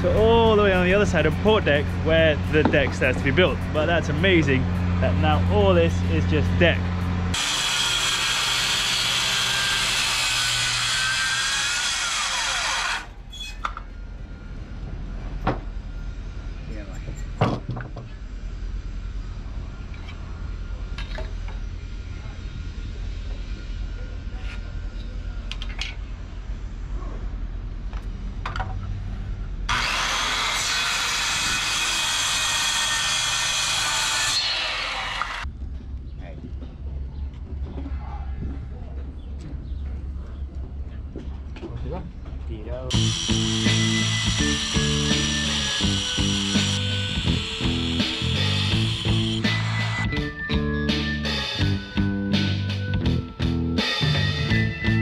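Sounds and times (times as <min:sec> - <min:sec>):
handheld power tool whining: 0:07.3 - 0:13.2, 0:29.7 - 0:35.5, 0:42.9 - 0:50.5
low rumble: 0:35.4 - 0:42.3.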